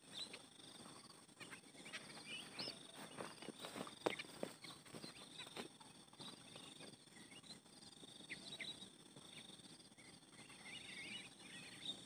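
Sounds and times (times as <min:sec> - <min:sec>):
bird chirps: 0:00.0 - 0:12.0
insects trilling: 0:00.0 - 0:12.0
small birds twittering: 0:00.0 - 0:12.0
footsteps on dry ground: 0:02.0 - 0:06.4.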